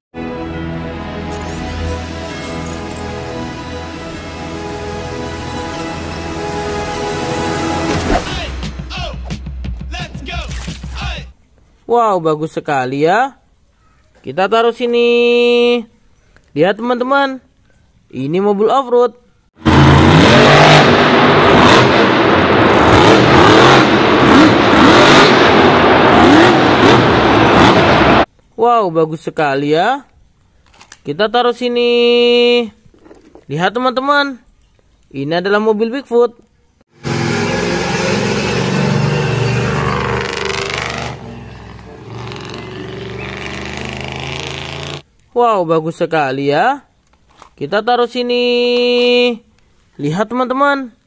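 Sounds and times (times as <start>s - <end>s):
monster truck engine revving: 19.6s - 28.3s, 36.9s - 45.0s
truck engine running: 37.0s - 45.0s.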